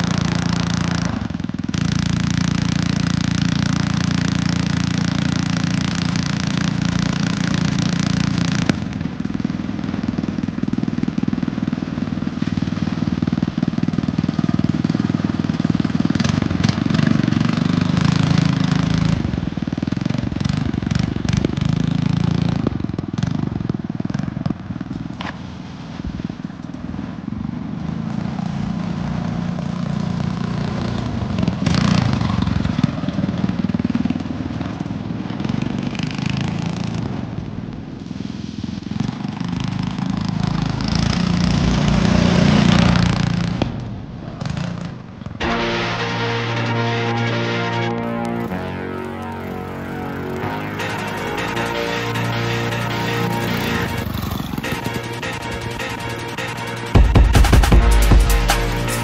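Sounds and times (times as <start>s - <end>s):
petrol engine running under load: 45.4s - 59.0s.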